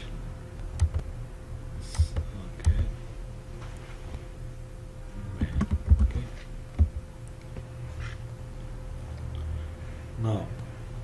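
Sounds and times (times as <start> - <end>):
faint steady hum: 0.0 - 11.0
keyboard keystrokes: 0.8 - 1.0, 5.4 - 6.2.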